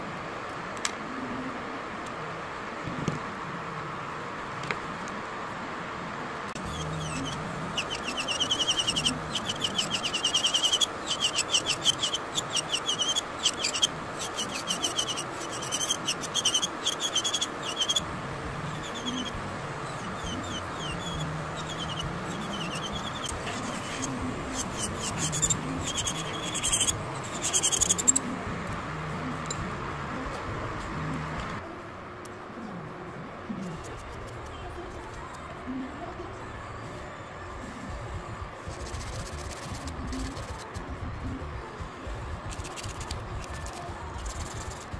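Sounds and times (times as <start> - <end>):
dust collector fan humming: 0.0 - 31.6
nail drill scraping fingernail: 6.6 - 18.0, 18.7 - 28.2.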